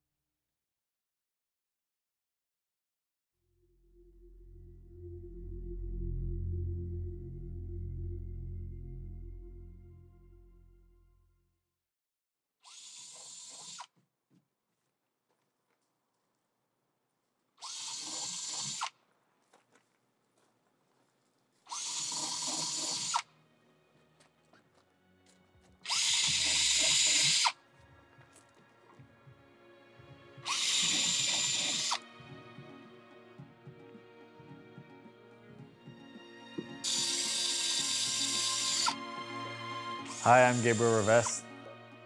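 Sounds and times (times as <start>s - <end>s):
low hum: 3.5s - 11.3s
deep low rumble: 3.6s - 11.1s
mechanical whirring: 17.6s - 18.9s, 21.7s - 23.2s, 25.9s - 27.5s, 30.5s - 32.0s.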